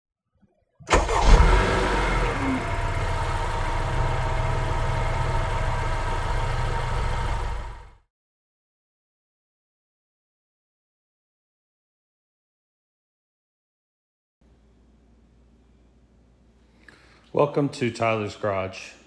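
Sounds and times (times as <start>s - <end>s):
engine running: 0.9s - 8.0s.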